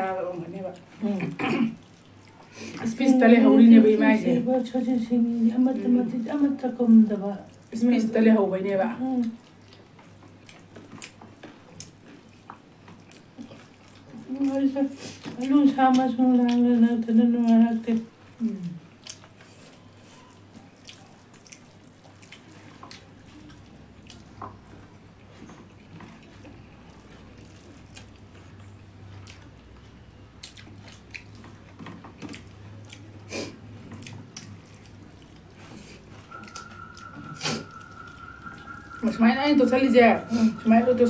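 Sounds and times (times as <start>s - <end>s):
low steady hum: 0.0s - 41.0s
chewing and mouth clicks: 0.6s - 2.9s, 9.1s - 16.8s, 17.4s - 39.0s
steady high tone: 36.2s - 41.0s.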